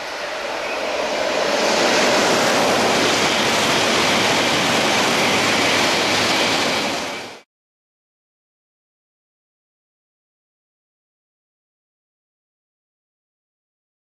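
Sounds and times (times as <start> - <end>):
train rushing past on wet track: 0.0 - 7.5.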